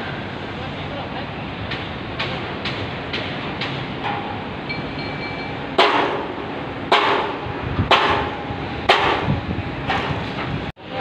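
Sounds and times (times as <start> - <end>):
hammer striking steel beam: 1.7 - 10.2.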